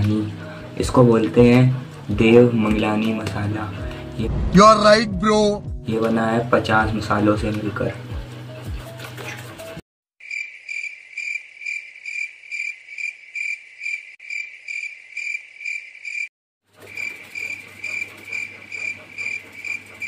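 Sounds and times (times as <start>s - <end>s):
cricket chirping: 10.2s - 16.3s, 16.9s - 19.8s.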